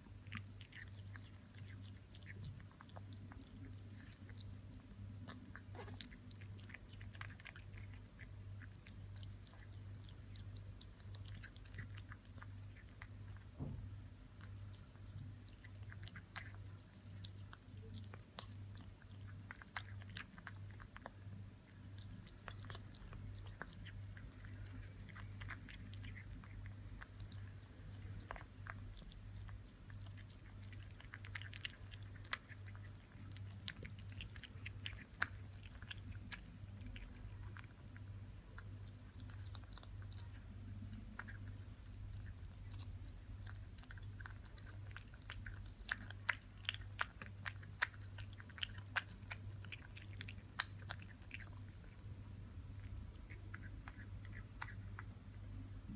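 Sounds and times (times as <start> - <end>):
kitten chewing wet meat: 0.0 - 55.9
low steady hum: 0.0 - 55.9.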